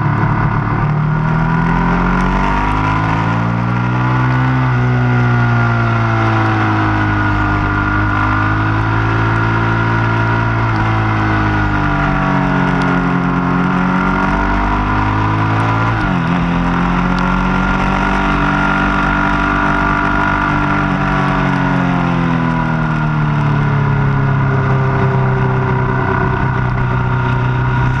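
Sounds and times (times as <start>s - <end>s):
motorcycle engine: 0.0s - 28.0s
wind rush: 24.0s - 28.0s.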